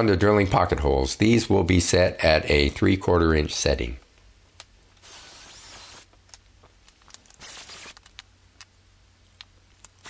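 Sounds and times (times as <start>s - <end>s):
cordless drill drilling: 5.0s - 6.0s, 7.4s - 7.9s.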